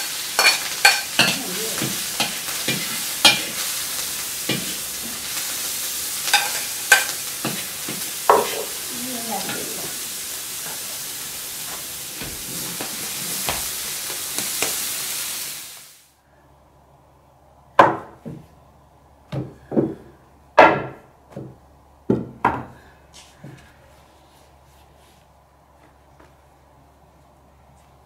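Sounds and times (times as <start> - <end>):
food sizzling in a wok: 0.0 - 16.2.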